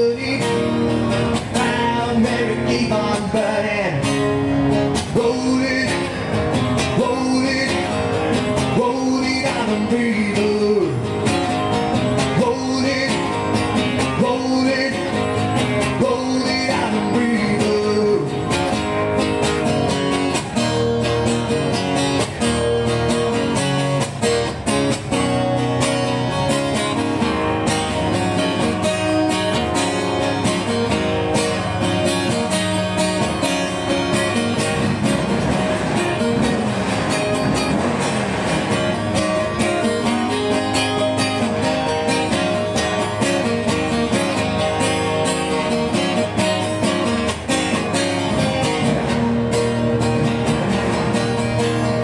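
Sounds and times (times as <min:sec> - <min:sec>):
acoustic guitar strumming chords: 0:00.0 - 0:52.0.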